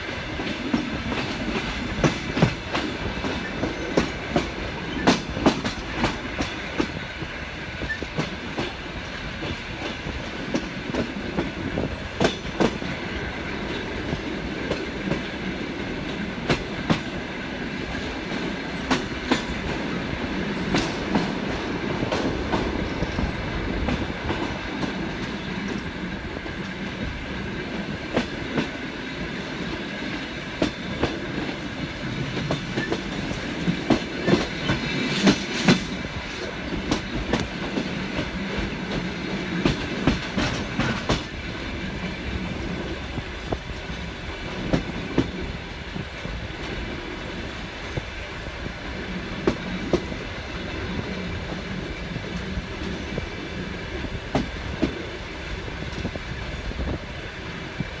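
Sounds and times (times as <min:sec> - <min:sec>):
train wheels rumbling: 0:00.0 - 0:58.0
clacks over rail joints: 0:00.4 - 0:07.0, 0:09.4 - 0:13.0, 0:32.2 - 0:41.4.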